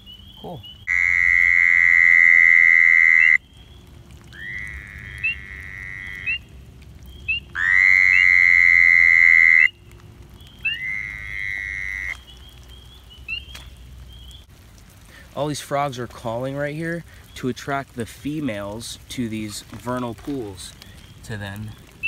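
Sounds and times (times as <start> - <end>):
frogs peeping: 0.0 - 14.5, 19.8 - 22.0
toads buzzing calls: 0.3 - 3.4, 4.3 - 6.5, 7.3 - 9.8, 10.6 - 12.4.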